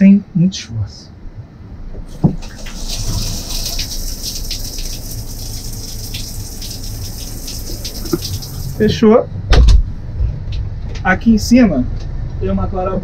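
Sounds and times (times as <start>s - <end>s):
shower water spraying: 2.1s - 8.9s.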